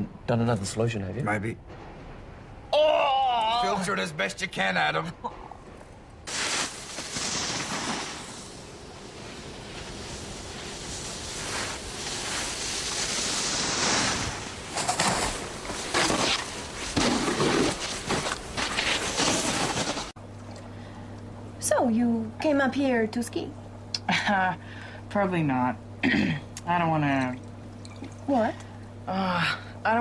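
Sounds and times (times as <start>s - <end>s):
snowboard scraping over snow: 6.3s - 20.1s.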